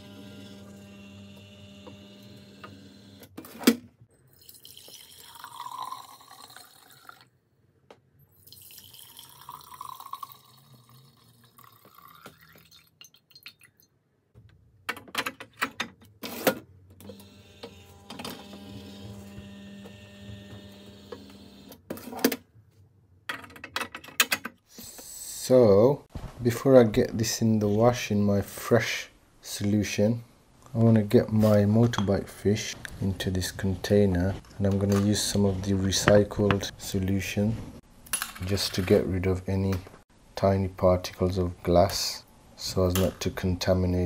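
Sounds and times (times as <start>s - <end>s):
machine motor hum: 0.0s - 3.2s, 17.1s - 21.7s
liquid poured into glass jars: 4.2s - 7.4s, 8.3s - 14.0s.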